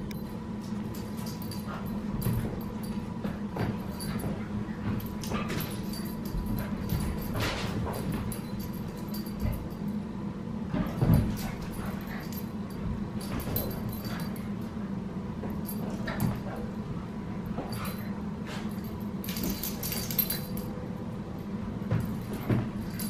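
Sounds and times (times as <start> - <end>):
steady low hum: 0.0 - 23.0
dogs play-fighting: 0.1 - 20.8, 21.4 - 23.0.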